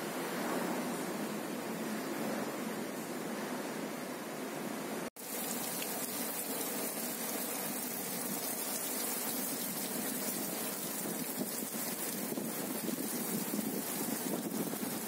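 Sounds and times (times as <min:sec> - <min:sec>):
heavy rain on rooftops: 0:05.2 - 0:15.0.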